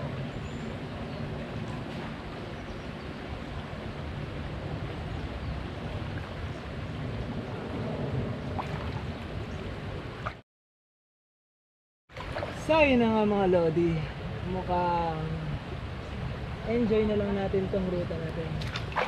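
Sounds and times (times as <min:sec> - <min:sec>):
road noise: 0:00.0 - 0:10.4
wind on microphone: 0:00.0 - 0:10.4, 0:12.2 - 0:19.0.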